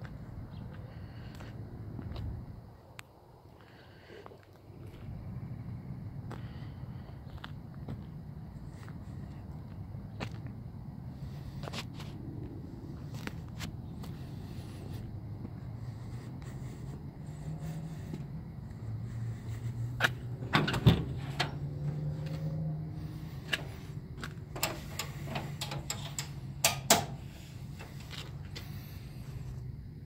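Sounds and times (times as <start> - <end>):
truck engine idling: 12.7 - 30.0
truck door metallic clicks: 20.4 - 21.7, 24.5 - 27.2.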